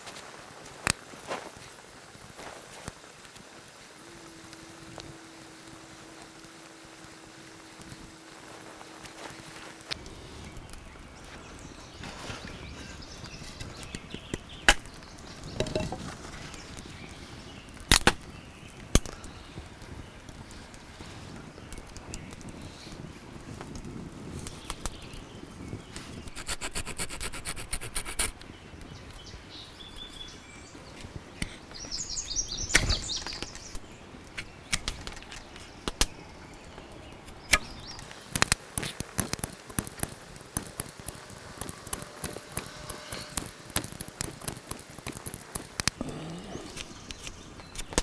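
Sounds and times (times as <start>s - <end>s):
knife carving wood: 26.3s - 28.3s.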